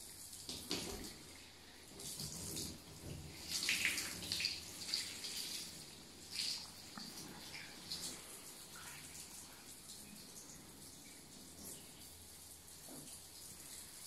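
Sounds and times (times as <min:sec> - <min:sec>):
tap water splashing in tub: 0:00.4 - 0:01.2, 0:01.9 - 0:05.7.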